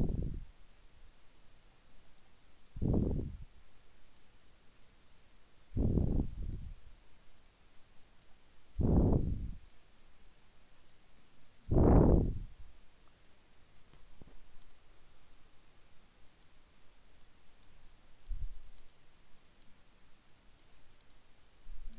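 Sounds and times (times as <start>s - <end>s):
computer mouse clicking: 0.0s - 0.4s, 1.6s - 2.3s, 4.0s - 4.3s, 5.0s - 5.2s, 5.8s - 6.7s, 10.9s - 11.7s, 13.9s - 14.8s, 17.2s - 19.0s, 20.6s - 21.2s.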